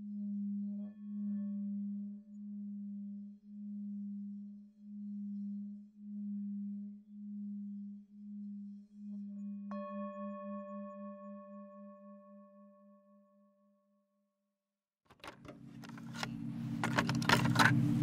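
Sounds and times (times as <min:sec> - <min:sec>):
low pulsing drone: 0:00.0 - 0:13.5, 0:15.3 - 0:18.0
struck bell-like tone: 0:05.0 - 0:13.8.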